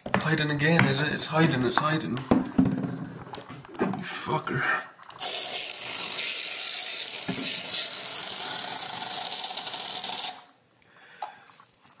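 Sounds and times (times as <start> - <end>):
aerosol spray hissing: 5.2 - 10.5.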